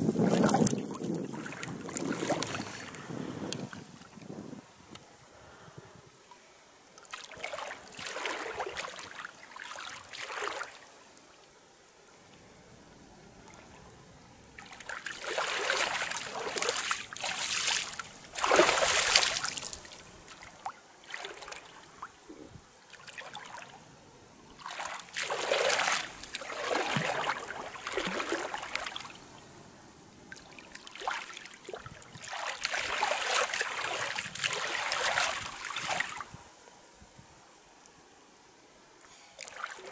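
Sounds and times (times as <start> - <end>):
water splashing and sloshing: 0.0 - 4.4, 7.0 - 11.0, 13.4 - 23.9, 24.5 - 29.5, 30.2 - 36.4, 39.4 - 39.9.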